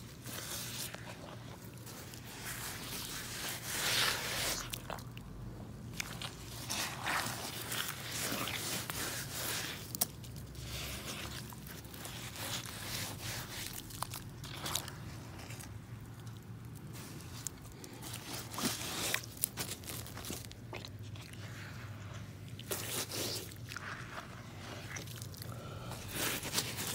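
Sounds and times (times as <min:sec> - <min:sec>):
boots squelching in mud: 0:05.9 - 0:15.8.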